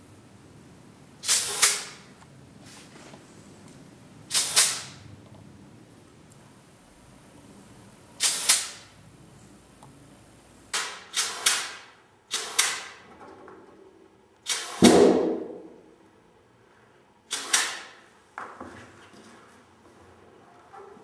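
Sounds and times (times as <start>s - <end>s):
air blow gun blasts: 1.2s - 2.1s, 4.3s - 5.0s, 8.2s - 8.9s, 10.7s - 13.0s, 14.4s - 15.7s, 17.3s - 18.0s.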